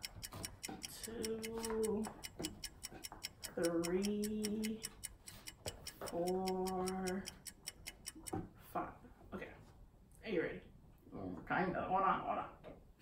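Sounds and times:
fast clock-like ticking: 0:00.0 - 0:08.4.

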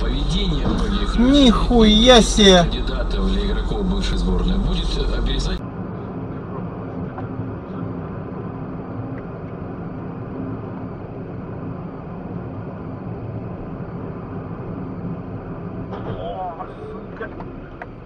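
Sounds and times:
car engine hum: 0:00.0 - 0:05.6.

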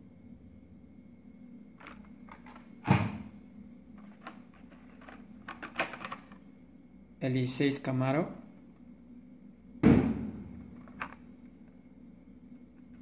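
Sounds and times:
plastic packs clicking and rustling: 0:01.8 - 0:02.7, 0:04.0 - 0:06.4, 0:10.8 - 0:11.2
louder knock: 0:09.8 - 0:10.6.

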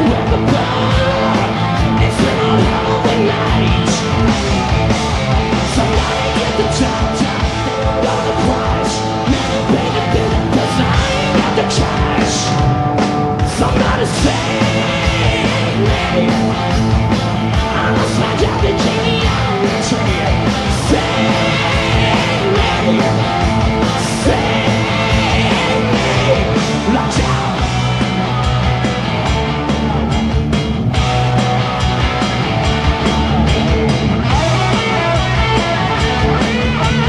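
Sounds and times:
person singing: 0:00.0 - 0:04.7, 0:05.4 - 0:12.8, 0:13.4 - 0:16.7, 0:17.6 - 0:27.8
bass: 0:00.0 - 0:37.0
distorted electric guitars: 0:00.0 - 0:37.0
steady drum beat: 0:00.0 - 0:37.0.

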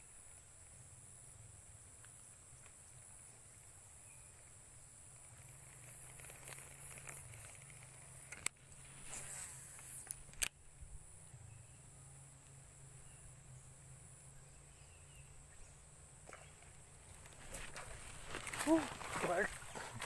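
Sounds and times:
high insect buzz: 0:00.0 - 0:20.0
fishing reel rustling: 0:05.3 - 0:10.7, 0:17.1 - 0:20.0.

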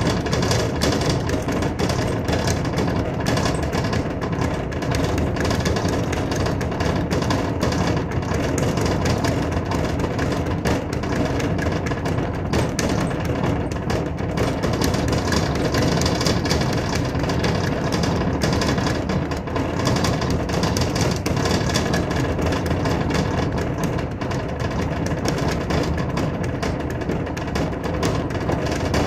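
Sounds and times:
speed bag rattle: 0:00.0 - 0:29.0.

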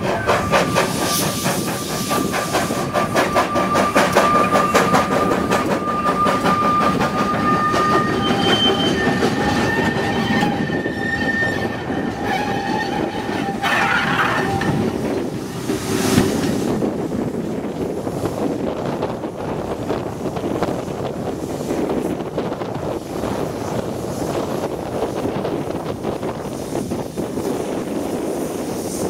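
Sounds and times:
steam hiss: 0:00.0 - 0:09.9, 0:13.6 - 0:29.0
train wheels clattering: 0:00.0 - 0:29.0
wheel squeals: 0:00.1 - 0:14.9.

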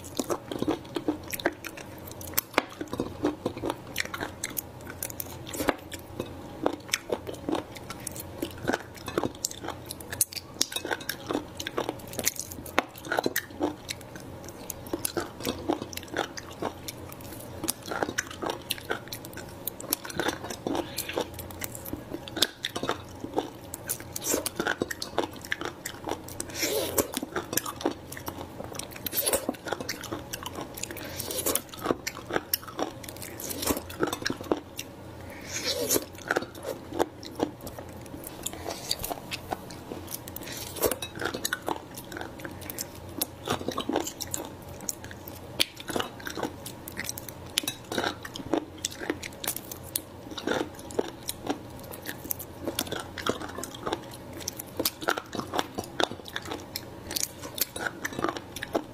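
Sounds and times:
chewing: 0:00.0 - 0:58.9.

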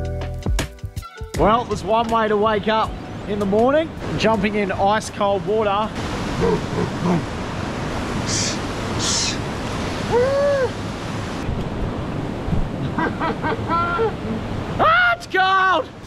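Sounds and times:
waterfall over rocks: 0:02.2 - 0:11.5
wind on microphone: 0:06.0 - 0:14.8
hissing breaths: 0:08.2 - 0:10.8.

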